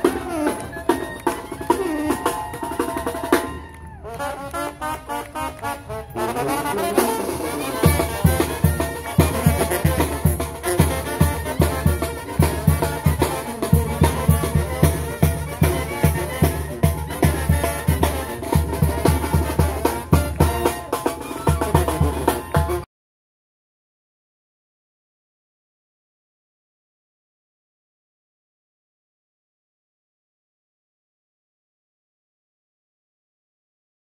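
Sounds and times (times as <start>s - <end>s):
snare and bass drum marching beat: 0.0s - 22.8s
brass band playing: 0.0s - 22.9s.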